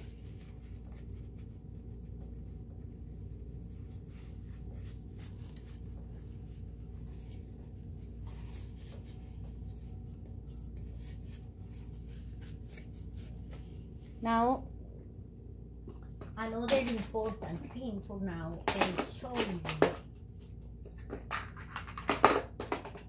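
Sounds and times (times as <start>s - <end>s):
cloth rubbing on machine: 0.0s - 14.6s
steady low hum: 0.0s - 21.1s.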